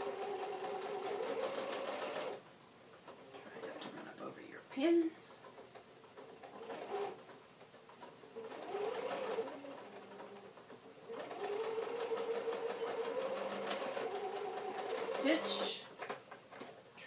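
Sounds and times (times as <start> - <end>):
sewing machine stitching: 0.0 - 2.4, 5.5 - 16.7.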